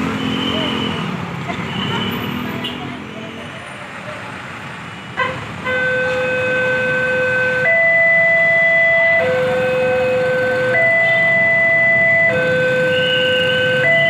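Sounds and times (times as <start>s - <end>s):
road traffic: 0.0s - 14.0s
level crossing two-tone alarm: 6.5s - 14.0s.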